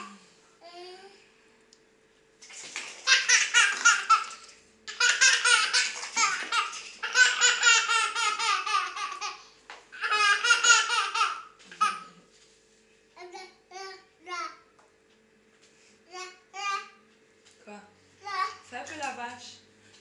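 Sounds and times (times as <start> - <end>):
baby laughing: 3.0 - 9.4, 10.0 - 12.1.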